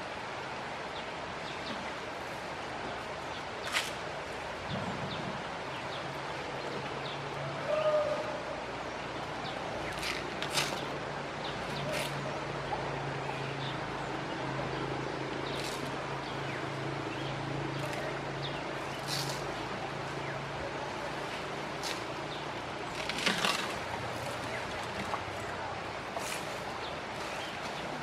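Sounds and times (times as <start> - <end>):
dry leaves rustling and crackling: 18.8 - 20.3, 21.0 - 28.0.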